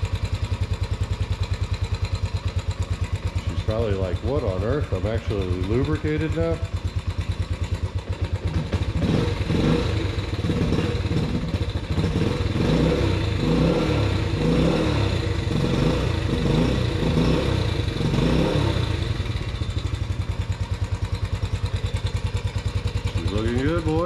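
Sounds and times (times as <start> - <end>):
quad bike engine revving and idling: 0.0 - 24.0.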